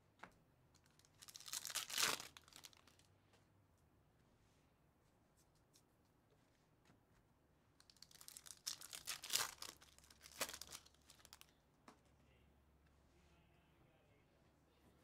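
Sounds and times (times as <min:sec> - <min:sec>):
foil wrapper tearing and crinkling: 0:00.8 - 0:03.1, 0:07.8 - 0:11.5.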